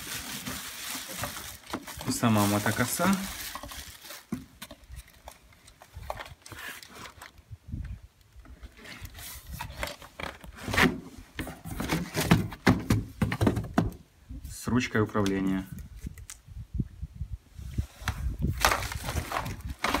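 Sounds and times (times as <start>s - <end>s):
plastic wrapping rustling: 0.0s - 7.3s, 18.5s - 20.0s.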